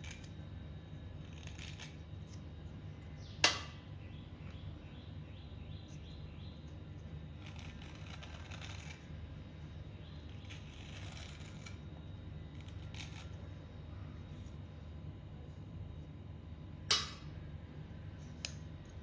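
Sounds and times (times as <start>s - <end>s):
steady low hum: 0.0s - 19.0s
plastic scraper scraping wet clay: 7.4s - 9.0s, 10.4s - 11.8s.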